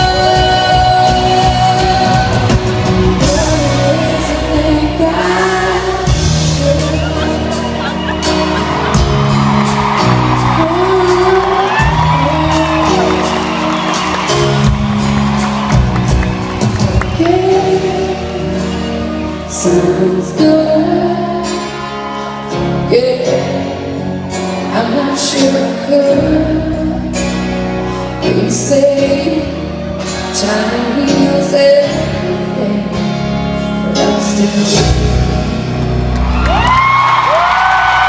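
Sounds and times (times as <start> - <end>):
woman singing: 0.0 - 8.0, 10.3 - 13.6, 17.0 - 27.4, 28.1 - 35.6
drums: 0.0 - 38.0
guitars: 0.0 - 38.0.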